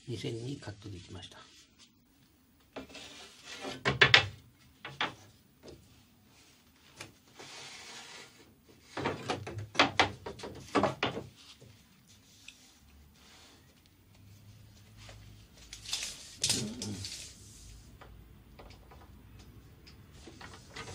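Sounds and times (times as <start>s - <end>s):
soft rub: 0.5s - 2.2s, 11.4s - 15.5s
wood knocking and scraping on wood: 2.7s - 5.9s, 7.0s - 12.4s.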